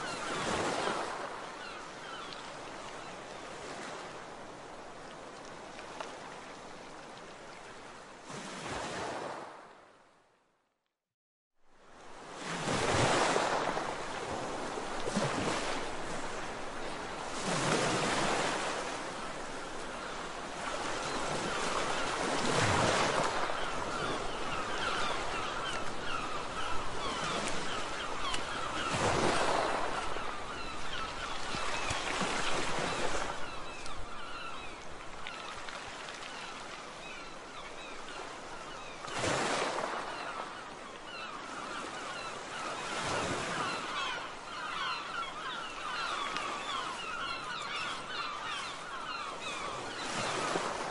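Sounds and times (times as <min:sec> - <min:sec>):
small waves washing onto shore: 0:11.7 - 0:50.9
faint bird calls: 0:18.1 - 0:50.9.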